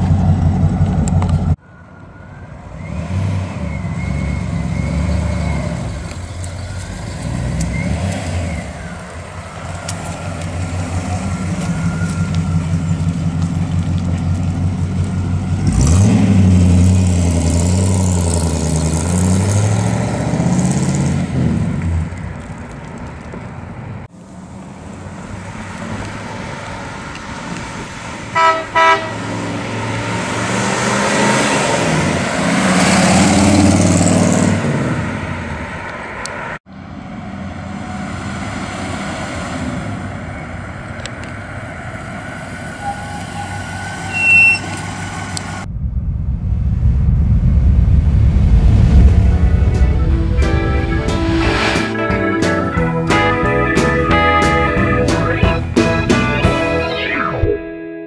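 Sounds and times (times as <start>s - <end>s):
car engine revving: 2.8s - 22.1s, 28.4s - 35.4s, 45.0s - 56.4s
car horn toots: 28.4s - 29.4s.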